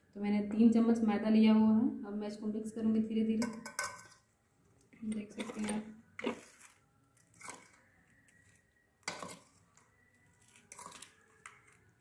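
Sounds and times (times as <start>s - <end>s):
spoon squelching through marinade: 6.2s - 11.9s.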